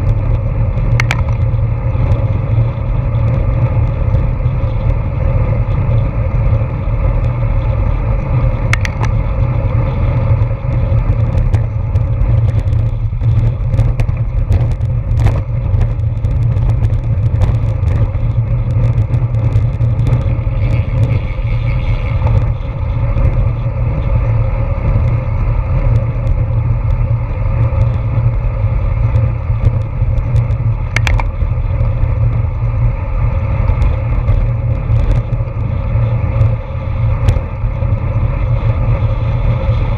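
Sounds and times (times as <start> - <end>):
tyre noise on asphalt: 0.0 - 39.9
wind buffeting microphone: 0.0 - 39.9
sharp clicks and knocks: 0.8 - 1.6, 8.7 - 9.2, 29.6 - 31.4.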